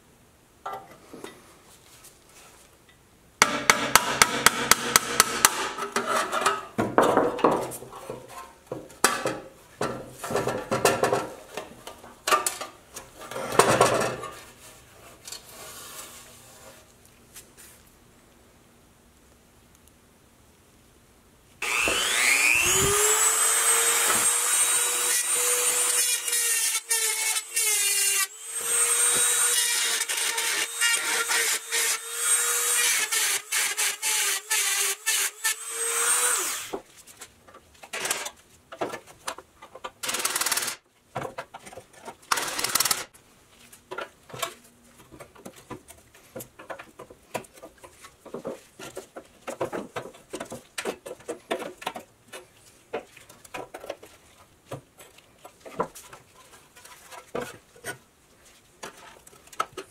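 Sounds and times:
rotary tool grinding metal: 0:21.6 - 0:36.7, 0:42.3 - 0:43.1.

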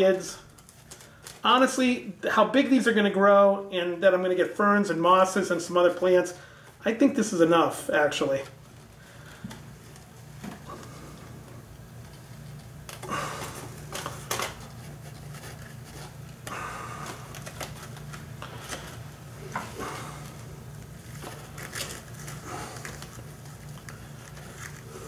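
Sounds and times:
steady low hum: 0:00.0 - 0:25.0
rustling and crackling moss: 0:14.0 - 0:25.0.

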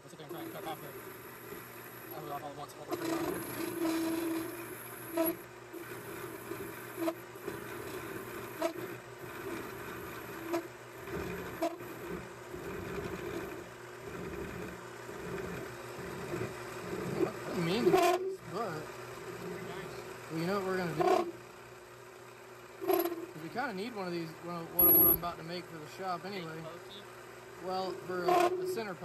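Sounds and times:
metal lathe running: 0:00.0 - 0:21.5, 0:22.8 - 0:29.0.

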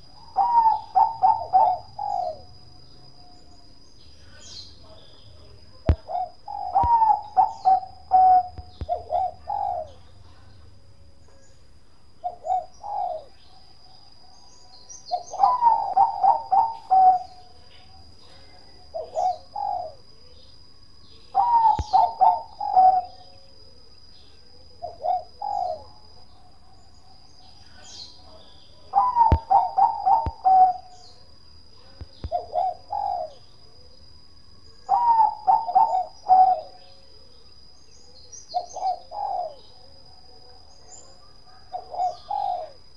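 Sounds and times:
dove cooing: 0:00.0 - 0:02.6, 0:05.9 - 0:10.4, 0:12.2 - 0:13.6, 0:14.3 - 0:20.1, 0:21.3 - 0:23.8, 0:24.4 - 0:31.2, 0:32.1 - 0:34.0, 0:34.8 - 0:37.4, 0:38.0 - 0:42.9.

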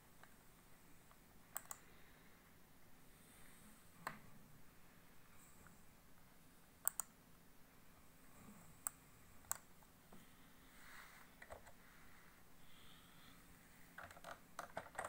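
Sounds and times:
computer mouse clicking: 0:01.0 - 0:01.9, 0:06.8 - 0:07.2, 0:08.8 - 0:09.7, 0:11.4 - 0:11.8, 0:14.0 - 0:15.0.

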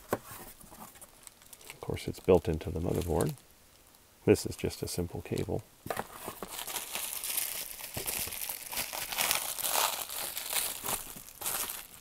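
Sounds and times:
bubble wrap crinkling: 0:00.6 - 0:04.0, 0:05.9 - 0:12.0.

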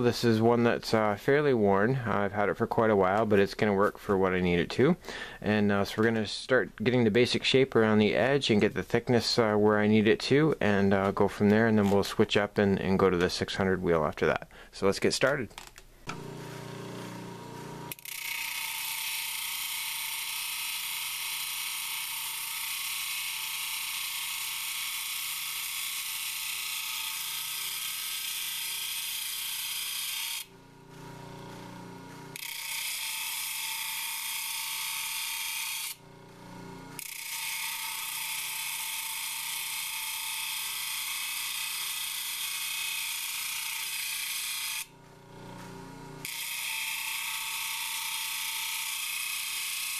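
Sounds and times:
motor hum: 0:16.0 - 0:18.1, 0:30.5 - 0:33.2, 0:35.9 - 0:38.4, 0:44.8 - 0:46.6
stone grinding on abrasive wheel: 0:16.3 - 0:49.9.

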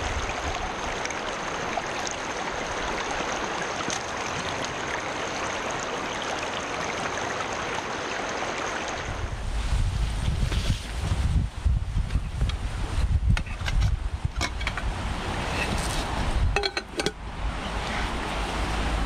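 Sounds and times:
creek water rippling over stones: 0:00.0 - 0:09.7, 0:14.5 - 0:19.0.

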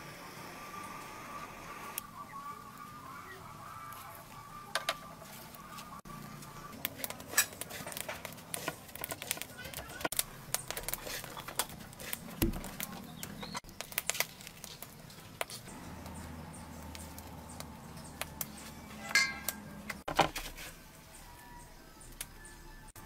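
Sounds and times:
breadcrumbs crunching: 0:06.8 - 0:18.6.

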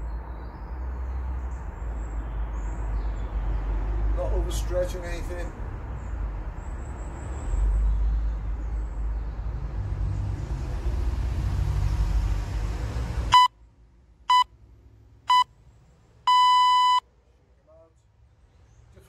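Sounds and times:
electronic timer beeps: 0:13.3 - 0:13.5, 0:15.3 - 0:15.5, 0:16.3 - 0:17.0.

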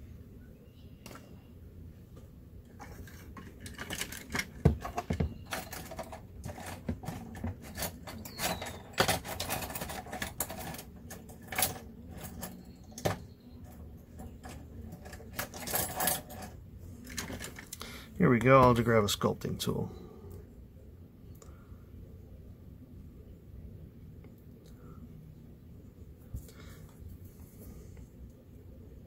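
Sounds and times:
hand tools clinking and clattering: 0:02.7 - 0:17.8.

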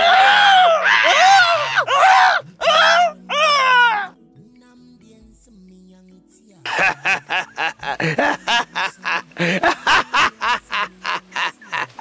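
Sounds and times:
man laughing heartily: 0:06.7 - 0:12.0.

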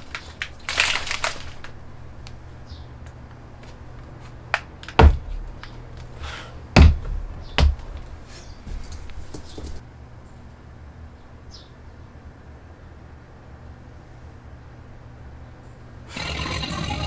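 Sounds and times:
dull thumps: 0:04.6 - 0:06.1, 0:06.7 - 0:09.8.

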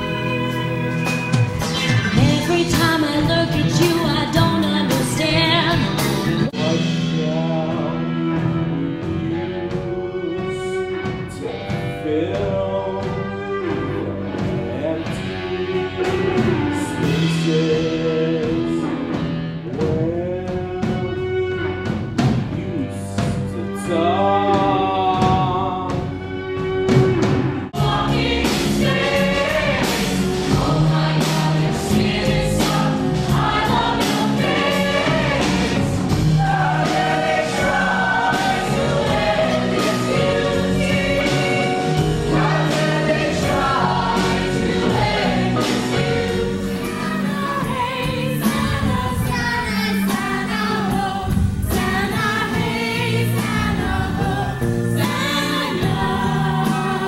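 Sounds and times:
band accompaniment with drum beat: 0:00.0 - 0:57.0
ensemble singing together: 0:27.6 - 0:57.0.

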